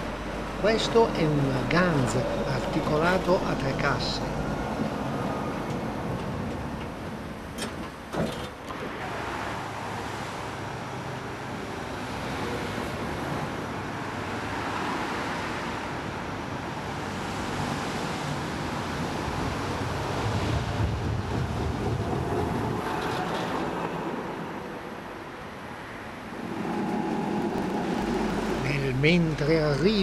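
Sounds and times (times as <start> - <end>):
tram wheels rumbling on rails: 0.0 - 14.4, 18.6 - 30.0.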